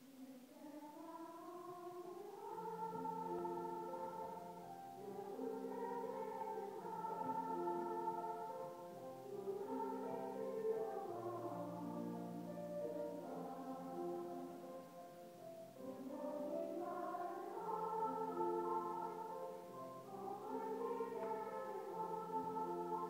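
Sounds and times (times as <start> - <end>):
slow choir-like chords: 0.0 - 23.0.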